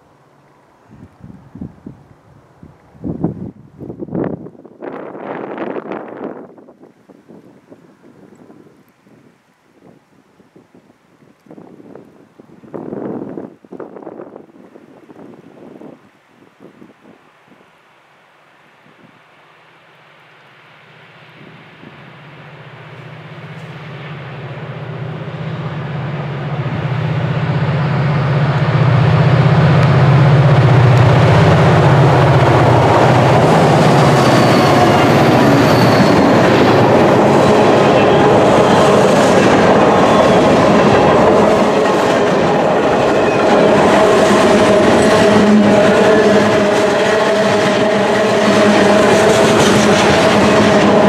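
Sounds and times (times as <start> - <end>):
diesel locomotive engines droning: 18.8 - 51.0.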